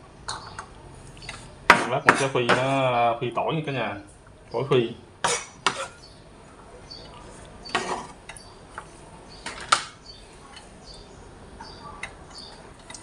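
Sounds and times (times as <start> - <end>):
knife scraping on cutting board: 7.7 - 8.2.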